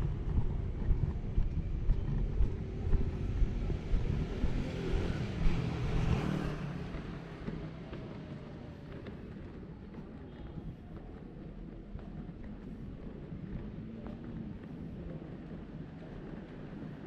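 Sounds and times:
wind buffeting microphone: 0.0s - 6.1s
vehicle passing by: 2.8s - 7.6s.

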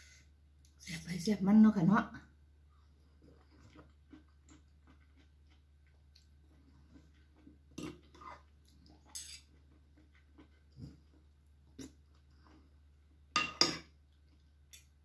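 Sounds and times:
faint chewing: 2.8s - 13.2s
cutlery clinking on ceramic bowl: 13.4s - 13.9s.

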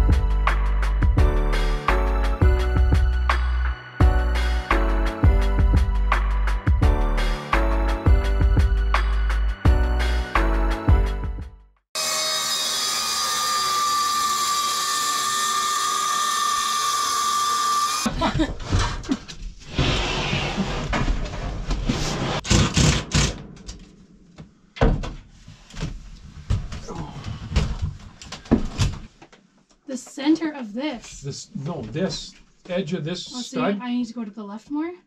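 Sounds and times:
power drill running: 12.0s - 18.1s.

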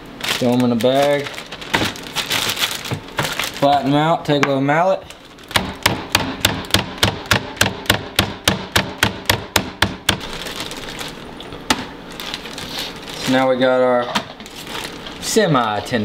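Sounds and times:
plastic bag rustling: 0.0s - 4.1s, 5.0s - 5.5s, 10.2s - 15.9s
meat mallet pounding: 5.5s - 10.4s.

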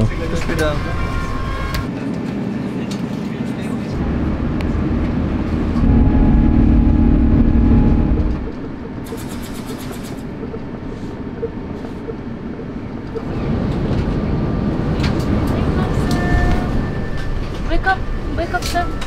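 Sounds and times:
jet engine rumble in cabin: 2.6s - 16.5s.

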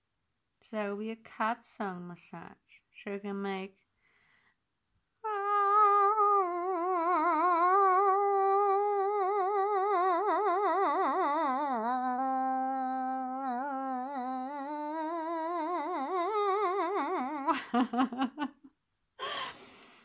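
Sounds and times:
woman humming with vibrato: 5.2s - 18.4s.

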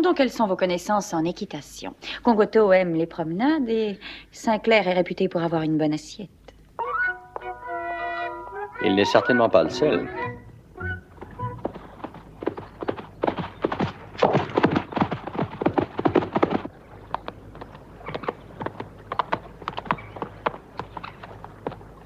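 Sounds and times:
horse hoofbeats: 10.1s - 22.0s.

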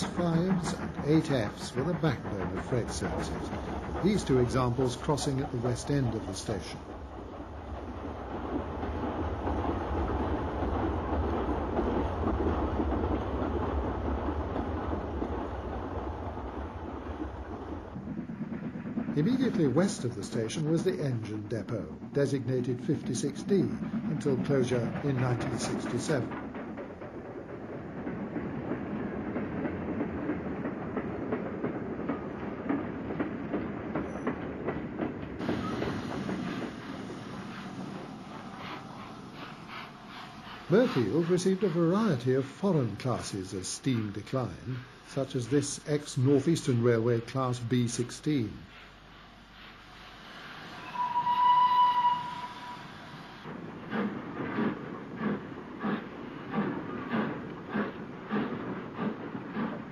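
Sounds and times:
wheels clanking over rail joints: 0.0s - 37.4s
steam train rumbling past: 0.0s - 59.9s
bright steam hiss: 35.4s - 46.8s, 47.4s - 51.5s.

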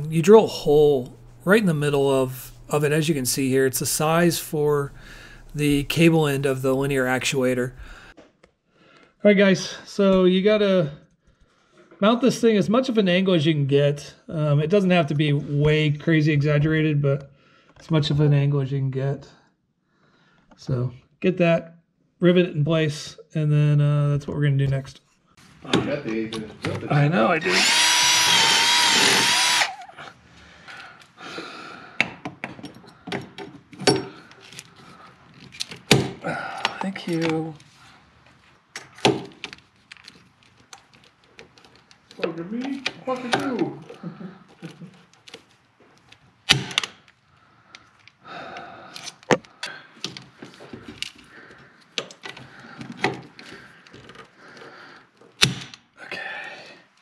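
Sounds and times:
cordless drill drilling: 27.4s - 29.9s
hand rivet gun clicking: 27.5s - 29.8s.

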